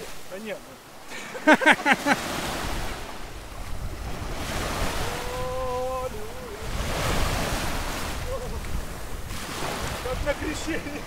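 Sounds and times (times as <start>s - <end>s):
waves washing onto pebbles: 0.0s - 11.0s
wind buffeting microphone: 2.4s - 11.0s.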